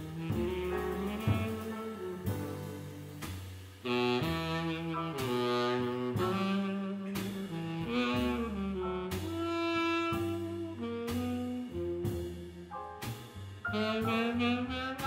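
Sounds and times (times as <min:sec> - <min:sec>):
saxophone melody: 0:00.0 - 0:13.0, 0:13.6 - 0:15.0
double bass: 0:00.0 - 0:15.0
drums: 0:00.0 - 0:15.0
piano: 0:00.0 - 0:15.0.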